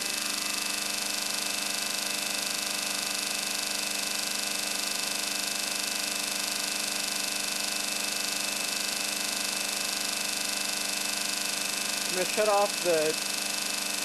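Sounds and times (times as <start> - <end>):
steady machine hum: 0.0 - 2.0, 11.0 - 14.0.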